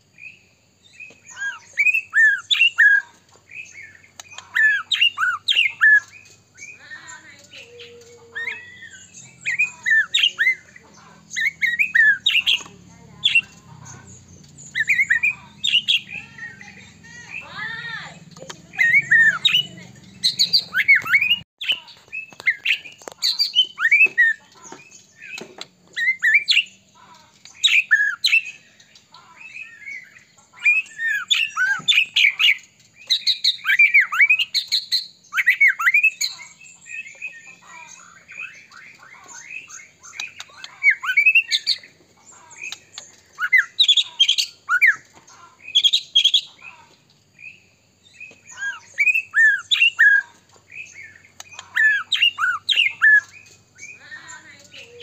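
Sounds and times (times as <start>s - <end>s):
bird singing loud whistles: 30.7s - 36.5s.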